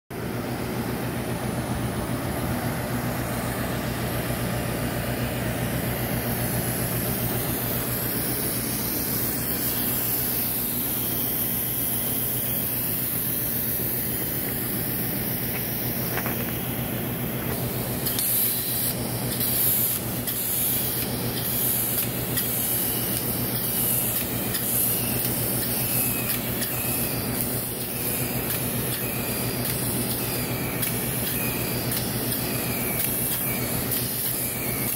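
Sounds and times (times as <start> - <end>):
spray equipment humming: 0.2 - 34.9
spray gun hissing: 2.9 - 34.9.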